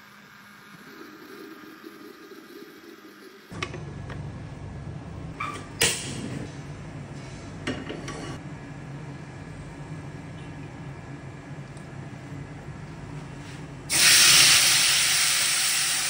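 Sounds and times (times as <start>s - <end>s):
gas burner rumbling: 3.5s - 16.0s.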